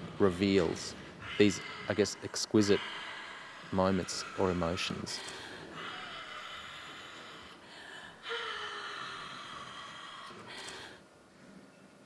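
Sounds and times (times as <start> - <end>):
woman gasping: 5.2 - 11.0.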